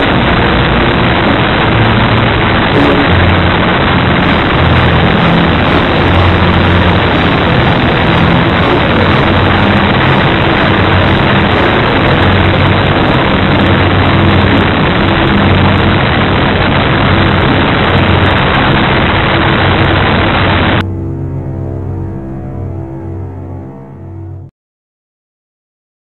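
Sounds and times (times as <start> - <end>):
model plane wind and motor hiss: 0.0 - 20.8
dark-toned music: 0.0 - 24.5
low steady drone: 0.0 - 24.5.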